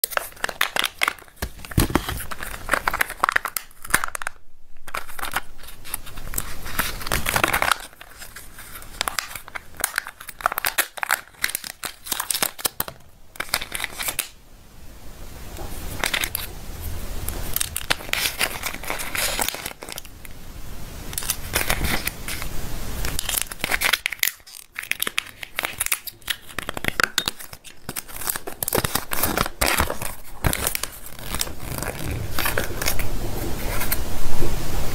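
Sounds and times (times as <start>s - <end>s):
packaging crinkling and tearing: 0.0s - 14.4s, 15.6s - 16.5s, 17.2s - 20.4s, 21.0s - 34.0s
paper leaflet rustling: 0.0s - 14.4s, 15.6s - 16.5s, 17.2s - 20.4s, 21.0s - 34.0s
plastic toy pieces handled: 0.0s - 14.4s, 15.9s - 16.5s, 17.3s - 20.2s, 21.1s - 33.1s.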